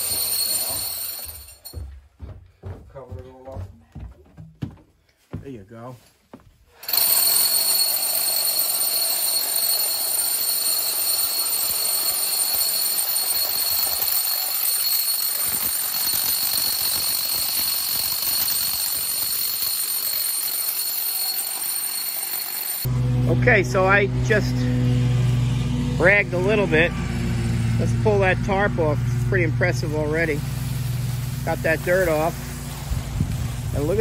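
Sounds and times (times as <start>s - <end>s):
rotary hammer drilling into concrete: 0.0s - 1.6s, 6.8s - 22.9s.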